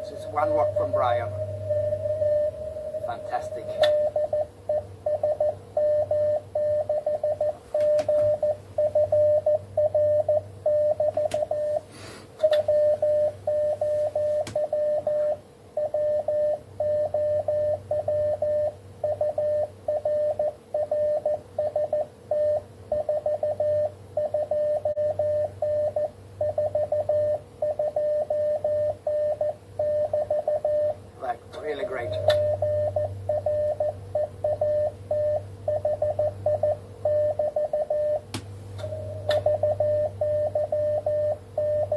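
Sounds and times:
steady low tone: 0.0s - 6.9s, 38.8s - 41.9s
morse code beeps: 0.0s - 11.8s, 12.4s - 31.0s, 31.6s - 38.2s, 38.8s - 41.9s
faint hum: 0.0s - 41.9s.

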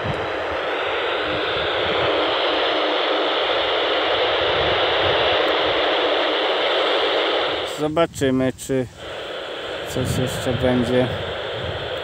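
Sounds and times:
wind rumble on microphone: 0.0s - 2.6s, 3.5s - 6.0s, 7.4s - 9.1s, 9.8s - 12.0s
radio static hiss: 0.0s - 12.0s.

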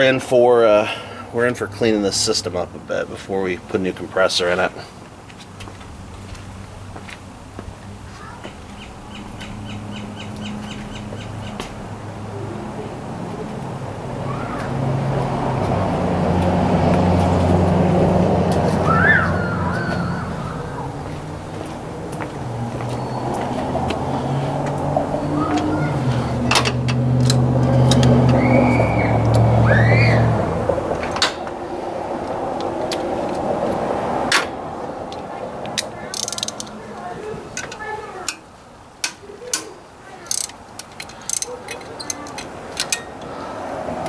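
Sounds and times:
steady background noise: 0.0s - 44.0s
bird calling: 8.2s - 11.7s, 18.8s - 21.2s, 22.8s - 26.5s, 27.8s - 30.3s
vehicle engine running: 9.0s - 37.4s
ratchet wrench clicking: 35.8s - 36.7s, 40.2s - 43.1s.

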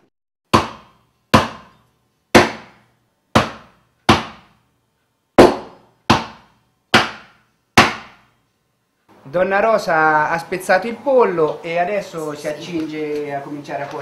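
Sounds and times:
heavy knife chopping chicken: 7.8s - 8.1s.

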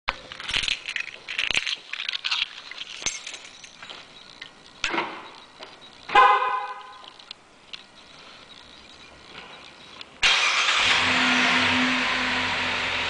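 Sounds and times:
keys jangling: 0.3s - 4.0s
loud pitched car sound: 10.2s - 13.0s.

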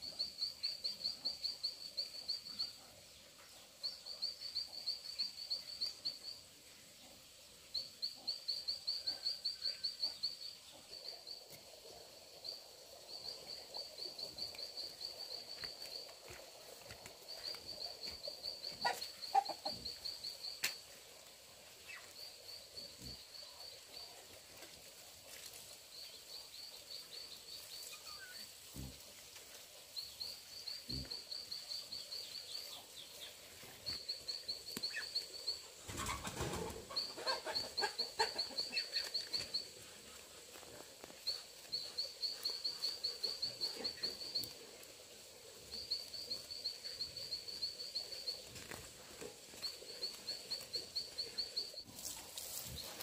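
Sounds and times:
rustling noise: 51.8s - 53.0s.

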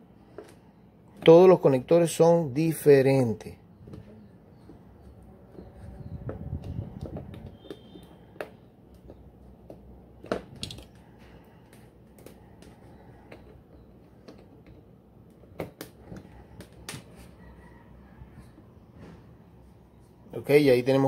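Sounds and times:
plastic connectors clicking: 6.7s - 11.0s.

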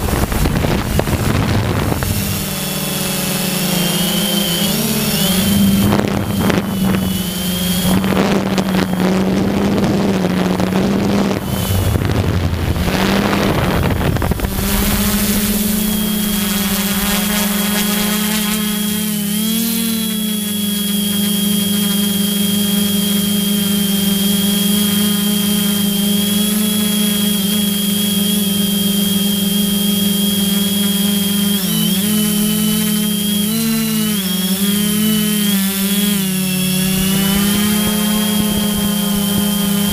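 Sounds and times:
wind on microphone: 0.0s - 27.0s, 29.2s - 39.9s
drone motors humming and whining: 0.0s - 39.9s.

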